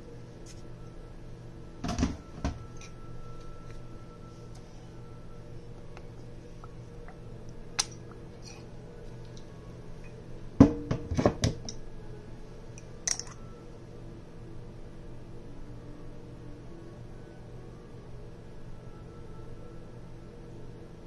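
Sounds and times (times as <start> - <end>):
steady low hum: 0.0 - 21.0
items knocking on a counter: 10.6 - 11.6.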